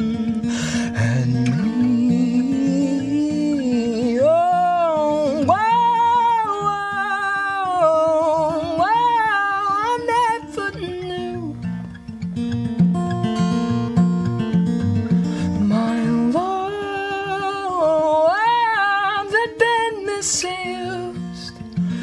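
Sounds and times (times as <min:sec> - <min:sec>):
acoustic guitar: 0:00.0 - 0:22.0
man singing: 0:00.5 - 0:11.5.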